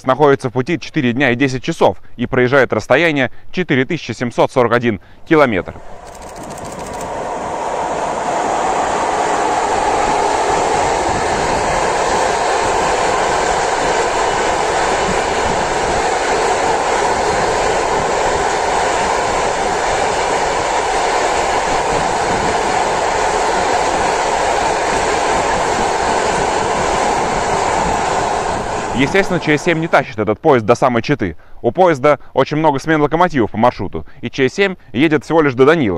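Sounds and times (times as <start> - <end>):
train wheels rolling on rail: 5.8 - 30.0.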